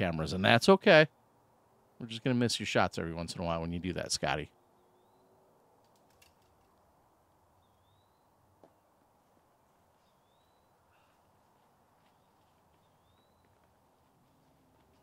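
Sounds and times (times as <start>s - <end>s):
faint rising bird whistle: 4.7s - 5.4s, 7.6s - 8.4s, 10.0s - 11.2s, 12.1s - 13.6s.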